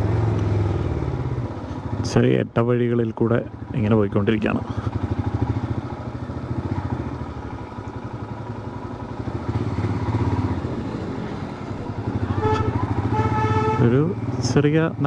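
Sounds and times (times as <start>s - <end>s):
motorcycle engine running: 0.0s - 15.0s
horn beep: 12.1s - 14.0s.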